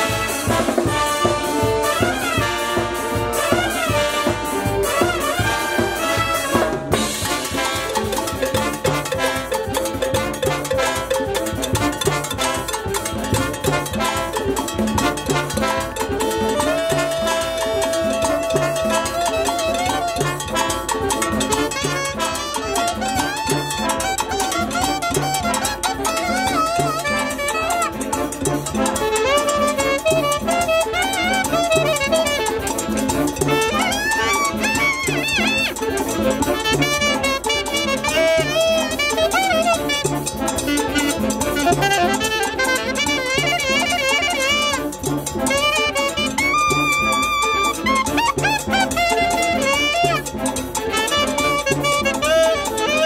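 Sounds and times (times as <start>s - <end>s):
brass band playing latin dance: 0.0s - 53.0s
timbales and congas: 0.0s - 53.0s.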